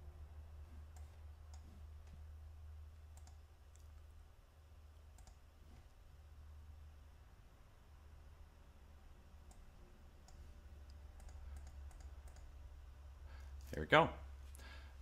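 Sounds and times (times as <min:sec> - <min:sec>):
low steady hum: 0:00.0 - 0:15.0
faint computer mouse clicks: 0:03.1 - 0:04.0, 0:05.2 - 0:05.4, 0:09.4 - 0:12.5.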